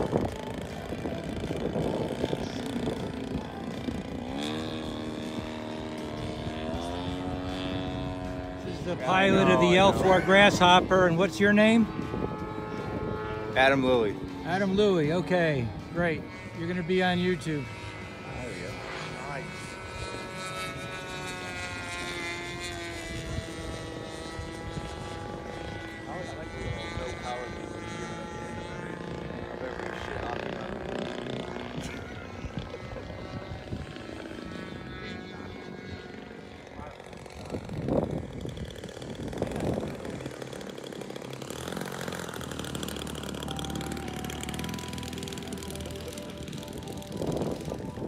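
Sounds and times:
model plane engine droning: 0.0s - 48.0s.

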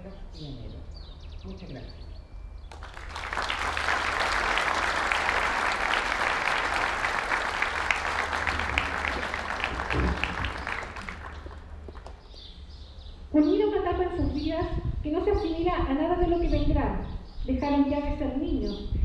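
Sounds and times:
audience applauding: 2.7s - 12.3s.

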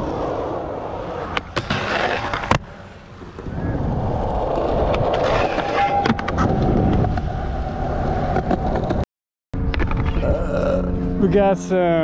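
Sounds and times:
skateboard wheels rolling on concrete: 0.0s - 9.0s.

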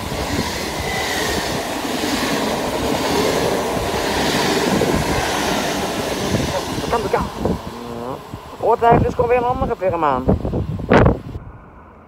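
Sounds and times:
train wheels rumbling past: 0.0s - 9.4s.

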